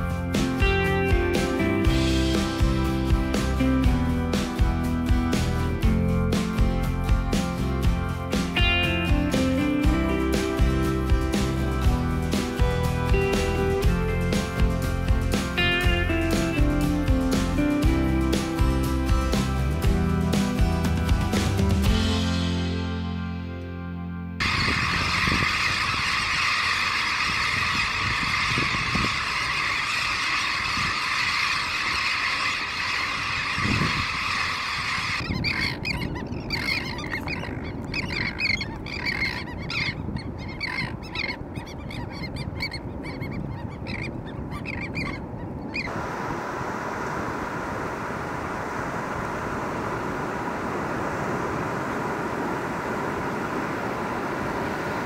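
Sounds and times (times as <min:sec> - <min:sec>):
terns calling: 0:24.4 - 0:46.1
surf washing: 0:45.8 - 0:55.0.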